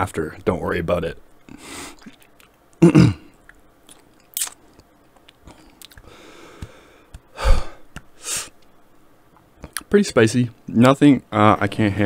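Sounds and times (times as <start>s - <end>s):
short breaths: 5.5s - 8.5s.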